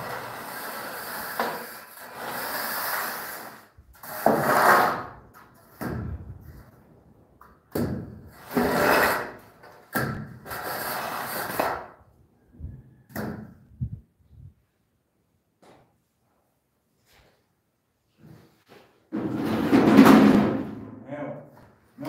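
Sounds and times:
straightedge scraping screed: 0:00.0 - 0:05.7, 0:08.3 - 0:12.0.

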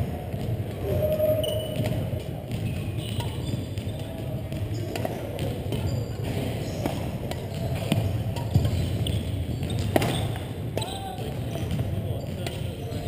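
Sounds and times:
racket hitting shuttlecock: 0:04.5 - 0:10.9.

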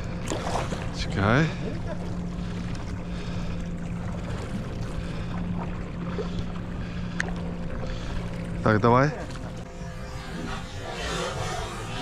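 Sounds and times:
boat engine idling: 0:00.0 - 0:12.0
water noise: 0:00.0 - 0:12.0
wind: 0:00.0 - 0:12.0.

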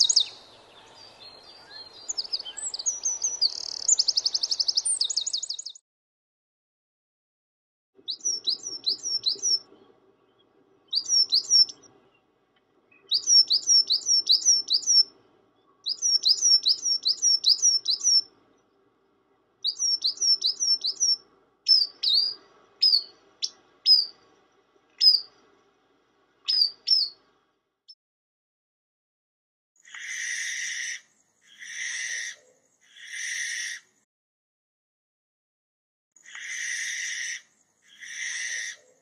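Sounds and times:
coal tit singing: 0:00.0 - 0:05.8, 0:08.0 - 0:18.8, 0:19.6 - 0:25.4, 0:26.4 - 0:27.2.

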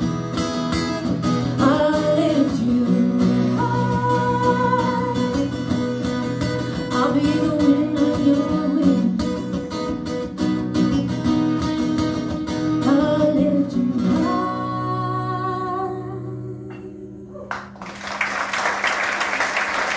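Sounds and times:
acoustic guitars playing: 0:00.0 - 0:17.2
audience applause: 0:17.5 - 0:19.9.

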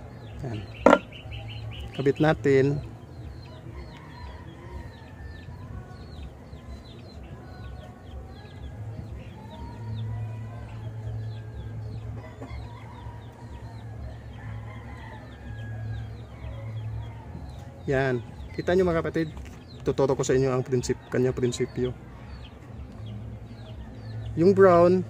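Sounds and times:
small birds chirping: 0:00.0 - 0:25.0
chickens clucking: 0:12.0 - 0:15.1.

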